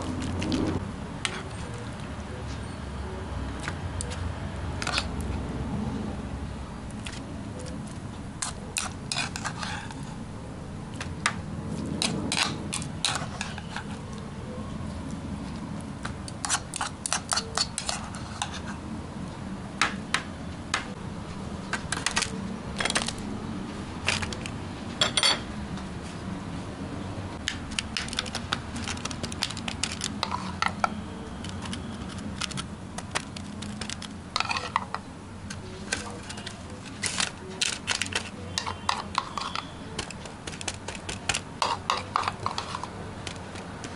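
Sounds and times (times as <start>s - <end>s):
spoon and plastic trays clattering: 27.5s - 43.9s.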